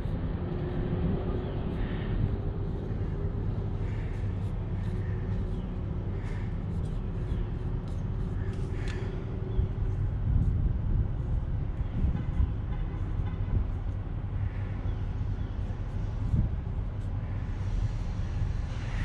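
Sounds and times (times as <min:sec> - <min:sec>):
marker scratching on metal: 0:02.7 - 0:09.1.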